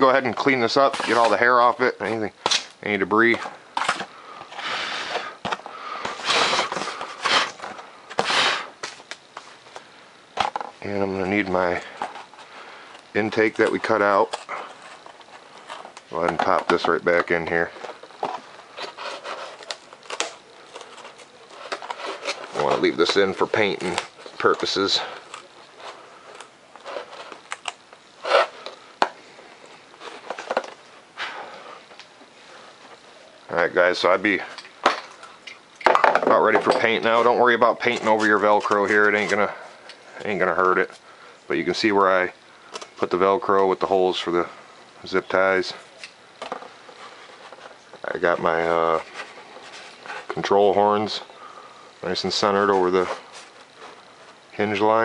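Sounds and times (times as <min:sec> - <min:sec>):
foam model rubbing and scraping: 0:00.0 - 0:01.8, 0:06.0 - 0:08.8, 0:13.4 - 0:24.8, 0:28.2 - 0:28.6.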